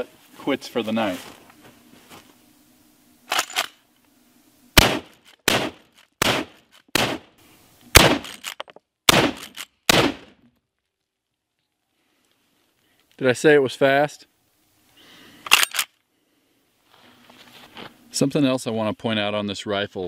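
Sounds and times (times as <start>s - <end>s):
rifle shots with echo: 4.8s - 7.3s, 8.0s - 8.4s, 9.1s - 10.3s.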